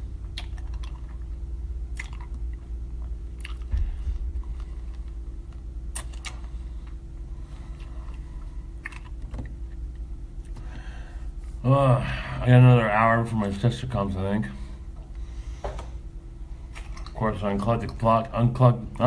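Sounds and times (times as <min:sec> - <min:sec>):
low room hum: 0:00.0 - 0:19.0
mouth clicks and smacks: 0:00.2 - 0:02.7, 0:03.4 - 0:03.8, 0:05.9 - 0:06.5, 0:08.8 - 0:09.6.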